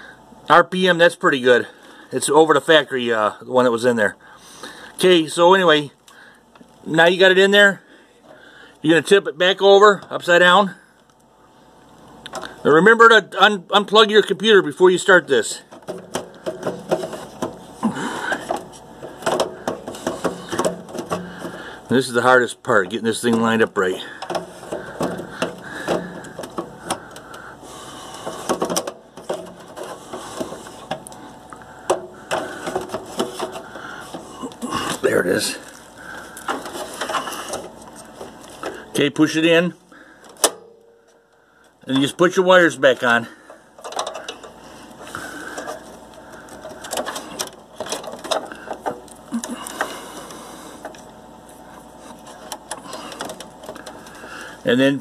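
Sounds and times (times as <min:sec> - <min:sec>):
cables rustling: 0:14.0 - 0:39.4, 0:41.6 - 0:55.0.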